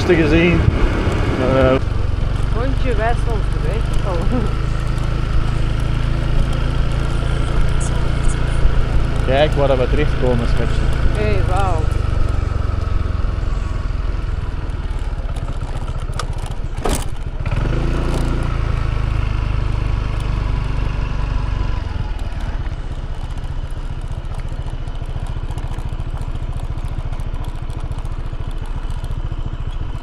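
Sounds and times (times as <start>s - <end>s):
wind buffeting microphone: 0.0s - 14.6s
motorbike running: 0.0s - 30.0s.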